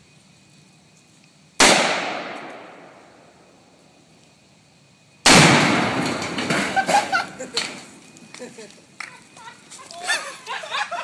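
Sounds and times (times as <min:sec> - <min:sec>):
loud explosive blast: 0:01.6 - 0:03.0, 0:05.2 - 0:06.8
echoing gunshot: 0:01.6 - 0:03.3, 0:05.2 - 0:06.6.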